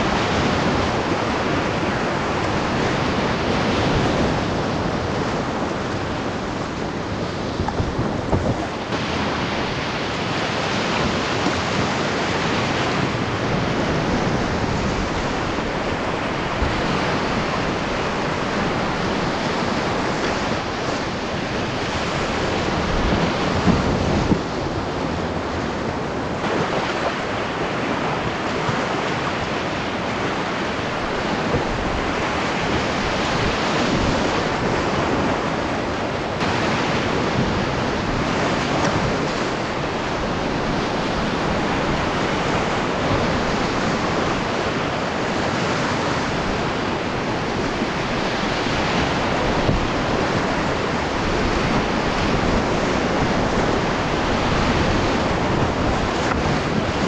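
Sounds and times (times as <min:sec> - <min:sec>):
whitewater rapids rushing: 0:00.0 - 0:57.0.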